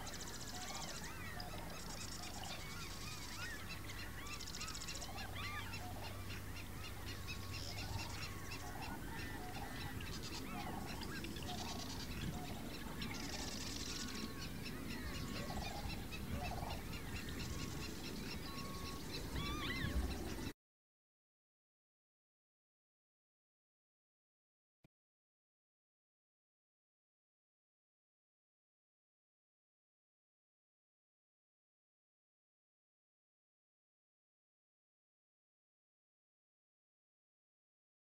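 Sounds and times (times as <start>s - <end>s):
swallow twittering: 0.0s - 20.5s.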